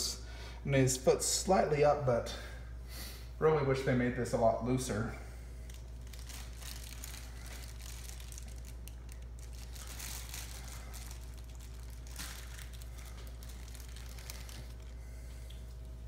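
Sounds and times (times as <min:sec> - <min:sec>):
steady low hum: 0:00.0 - 0:16.0
plastic bag crinkling: 0:05.6 - 0:16.0.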